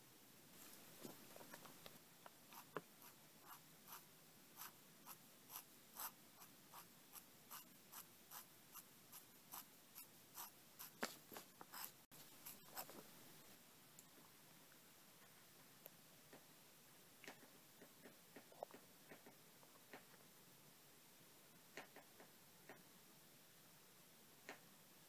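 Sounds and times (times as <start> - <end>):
pen nib scratching on paper: 2.5 - 13.1.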